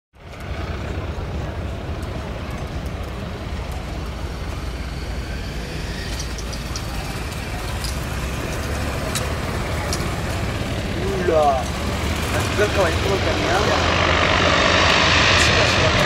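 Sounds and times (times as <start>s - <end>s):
radial aircraft engines running: 0.2s - 16.0s.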